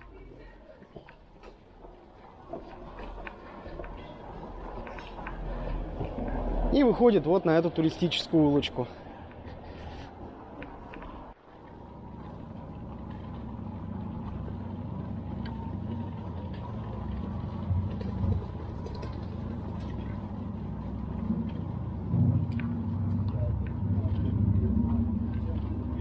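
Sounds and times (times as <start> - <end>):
tyres rumbling on stone paving: 10.4 - 26.0.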